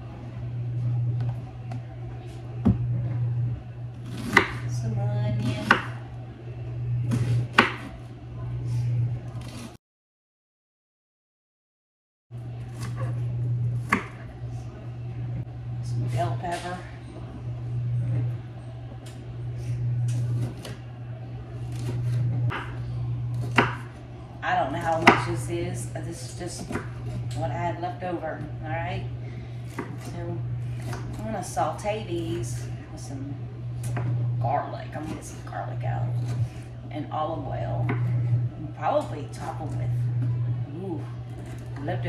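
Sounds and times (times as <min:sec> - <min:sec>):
steady low hum: 0:00.0 - 0:09.7, 0:12.3 - 0:42.0.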